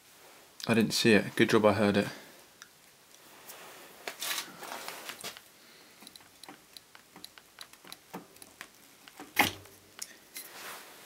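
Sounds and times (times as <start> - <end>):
bicycle parts clicking and rattling: 5.1 - 10.5.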